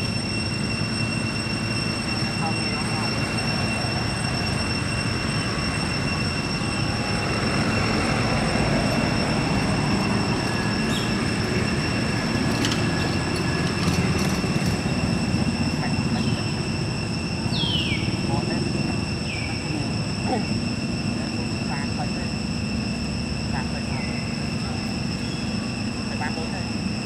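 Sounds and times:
high-pitched whine: 0.0s - 27.0s
rumble and hiss: 0.0s - 27.0s.

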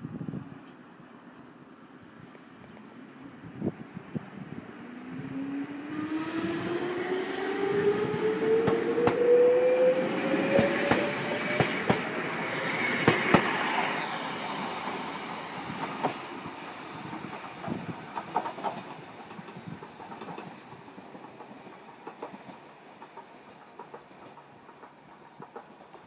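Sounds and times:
electric train motor whine: 4.6s - 13.0s
wheels clicking over rail joints: 7.8s - 9.4s, 10.2s - 14.1s, 14.8s - 26.0s.

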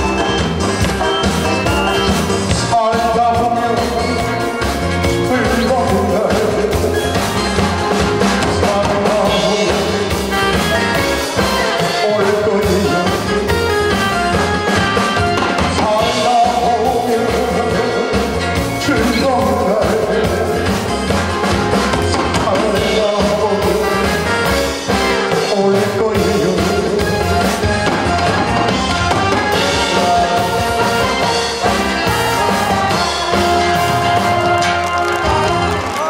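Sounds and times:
keyboard backing: 0.0s - 36.0s
steady drum beat: 0.0s - 36.0s
man singing into microphone: 1.5s - 7.2s, 8.4s - 13.5s, 15.4s - 21.0s, 22.1s - 27.7s, 29.5s - 31.4s.

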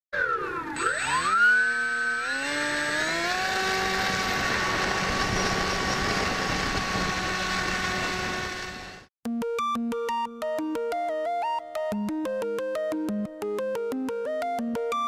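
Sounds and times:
model aircraft motor droning: 0.2s - 9.1s.

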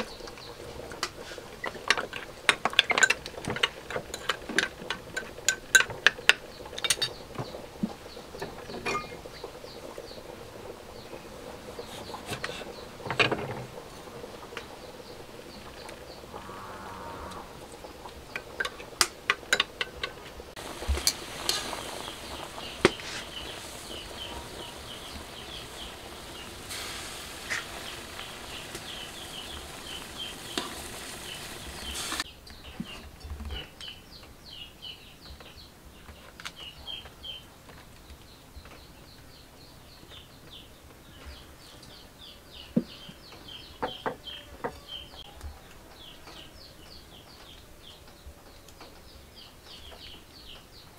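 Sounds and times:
pork sizzling in a wok: 17.5s - 32.3s.

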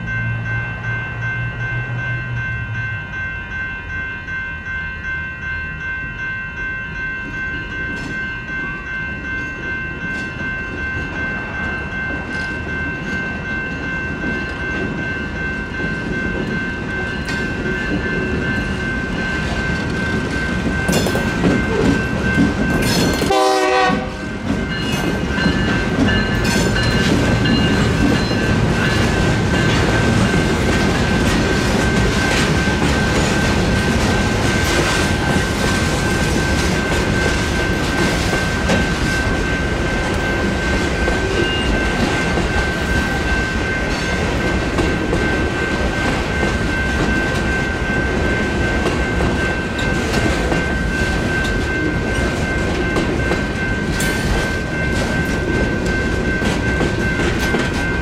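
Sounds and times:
railroad crossing bell ringing: 0.0s - 58.0s
train wheel clatter: 10.1s - 58.0s
train horn blast: 23.3s - 24.2s.

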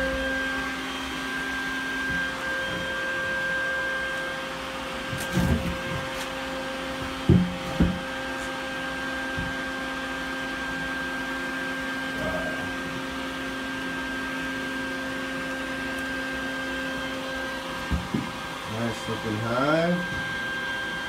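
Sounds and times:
vacuum motor humming: 0.0s - 21.0s
dull knocks: 7.2s - 8.0s.

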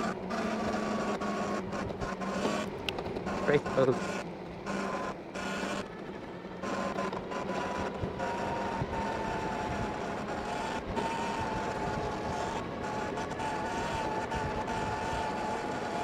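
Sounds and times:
electric bike motor whine: 0.0s - 16.0s
wind and tyre noise: 0.0s - 16.0s.

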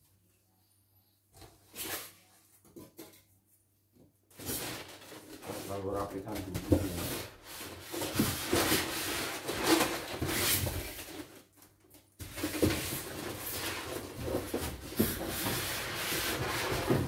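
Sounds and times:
polystyrene foam rubbing: 4.4s - 11.1s, 12.9s - 17.0s.

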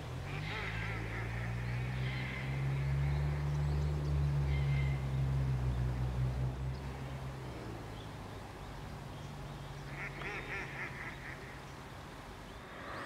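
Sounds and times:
faint bird calls: 0.0s - 5.4s, 6.7s - 13.0s.

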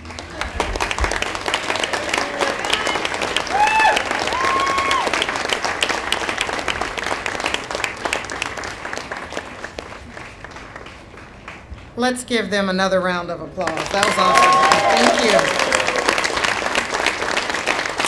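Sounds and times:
audience applauding: 0.0s - 12.0s, 13.6s - 18.0s
shouted cheers: 1.6s - 5.3s, 14.0s - 16.3s.

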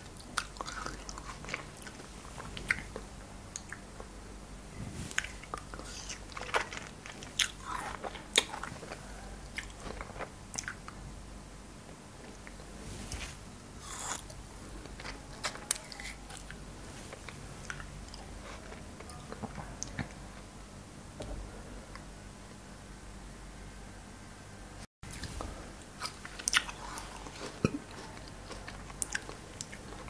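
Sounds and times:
crunchy chewing of frozen fruit: 0.1s - 3.0s, 5.2s - 11.0s, 13.8s - 20.2s, 25.1s - 30.0s.

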